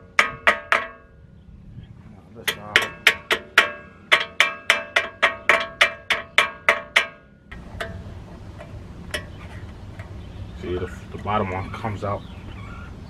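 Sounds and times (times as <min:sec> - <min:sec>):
hammer striking steel: 0:00.0 - 0:01.1, 0:02.4 - 0:08.1.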